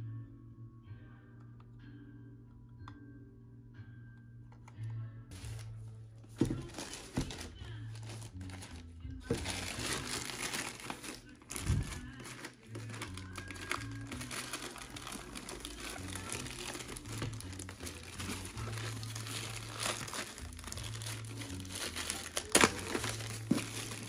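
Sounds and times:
plastic bag crinkling and tearing: 6.5 - 24.0.

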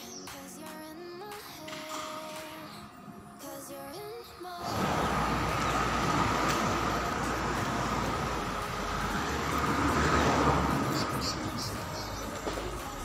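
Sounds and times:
passing cars rushing: 4.6 - 13.0.

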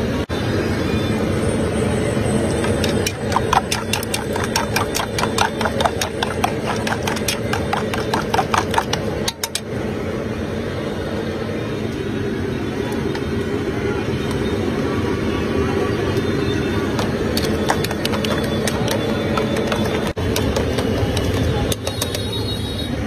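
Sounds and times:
metal whisk clinking in bowl: 2.6 - 9.6.

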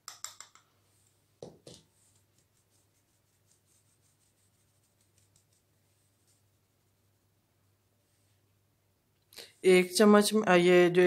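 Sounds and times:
light scratching of sieve: 1.9 - 6.6.

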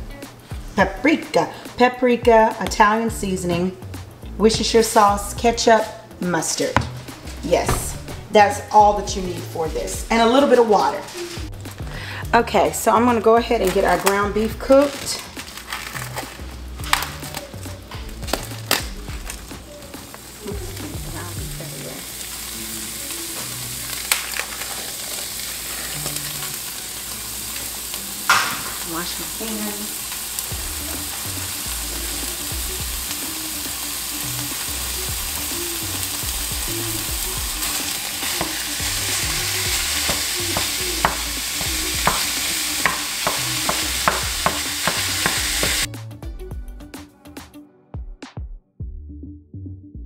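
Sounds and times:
meat sizzling in a frying pan: 13.8 - 45.9
utensil tapping and scraping pan: 40.0 - 45.9.

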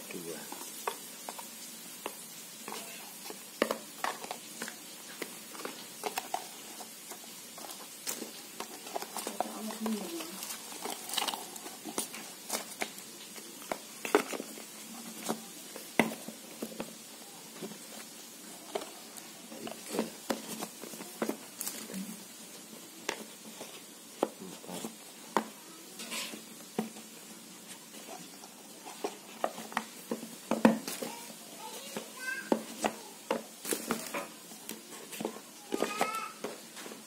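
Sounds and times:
cardboard boxes tapping and knocking: 0.6 - 13.0, 13.6 - 17.8, 18.7 - 21.9, 28.8 - 31.2, 31.9 - 37.0.

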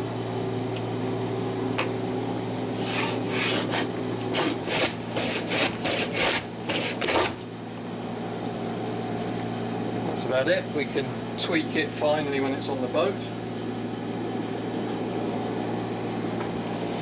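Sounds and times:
hand plane shaving wood: 2.8 - 7.4.

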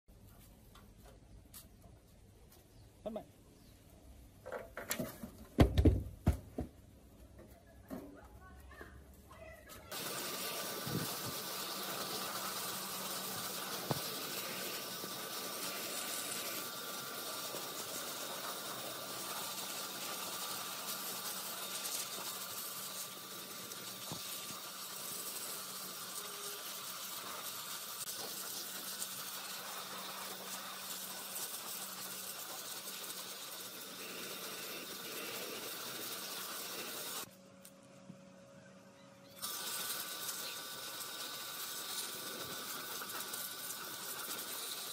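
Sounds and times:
pressure washer spray hissing: 9.9 - 37.3, 39.4 - 44.9
pump humming: 9.9 - 37.5, 38.1 - 44.9.

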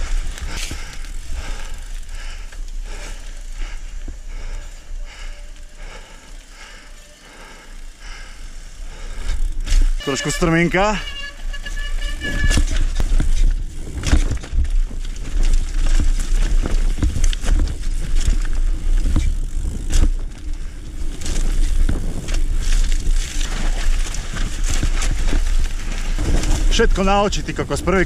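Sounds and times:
bike rattling over bumps: 0.0 - 28.0
tyres crunching on dirt: 9.4 - 28.0
wind rumble on microphone: 12.0 - 28.0.

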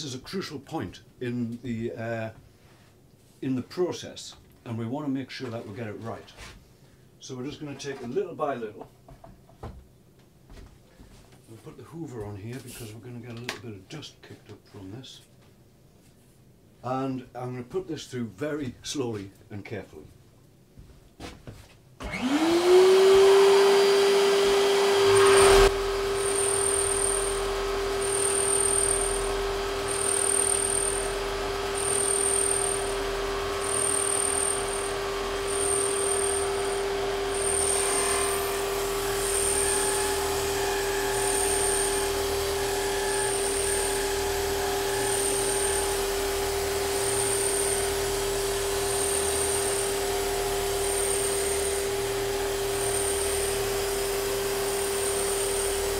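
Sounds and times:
vacuum cleaner running: 22.0 - 55.9
drum sander whining: 22.1 - 55.9.

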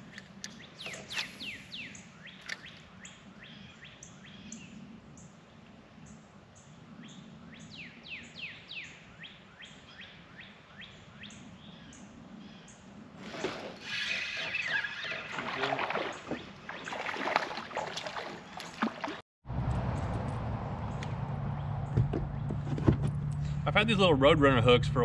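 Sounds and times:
songbirds chirping: 0.0 - 19.2.

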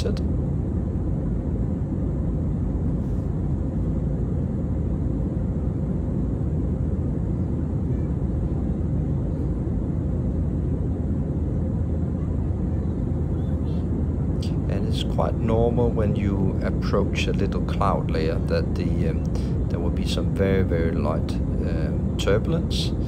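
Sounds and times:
rushing air: 0.0 - 12.0
jet engines rumbling in cabin: 0.0 - 23.0.

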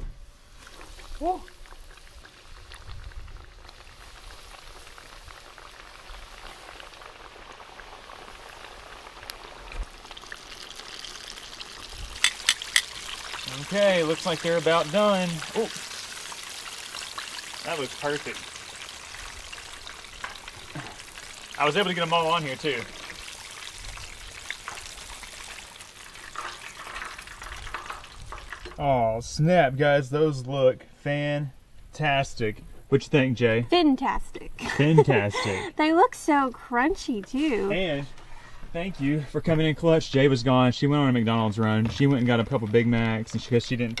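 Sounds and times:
fish sizzling in hot oil: 0.0 - 28.9.

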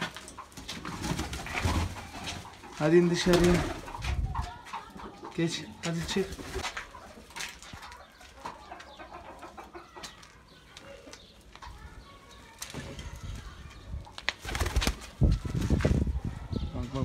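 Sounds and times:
pigeon wing flaps: 14.3 - 16.0.

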